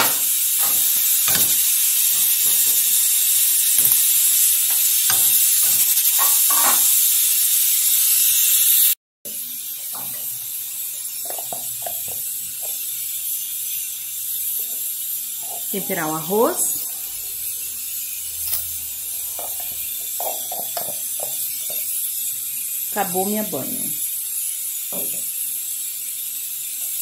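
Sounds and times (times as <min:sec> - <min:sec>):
pot lid and utensils clinking: 0:00.0 - 0:07.0, 0:18.4 - 0:21.9
pressure cooker hissing: 0:00.0 - 0:27.0.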